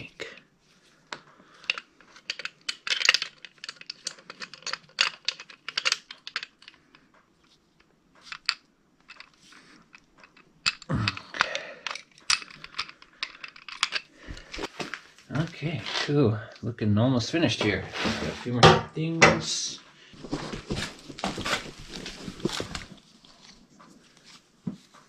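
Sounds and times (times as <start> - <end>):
metal clicks and clinks: 1.1 - 7.6, 8.2 - 14.7
handling noise: 20.2 - 25.0.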